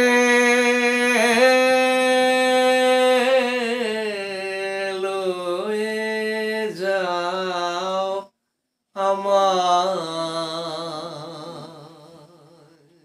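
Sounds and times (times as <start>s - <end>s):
person singing folk song: 0.0s - 8.3s, 9.0s - 13.0s.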